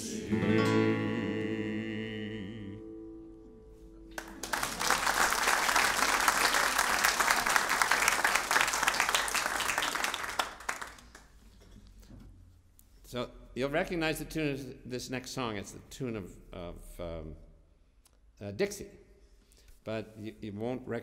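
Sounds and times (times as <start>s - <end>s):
audience applauding: 4.1s - 11.3s.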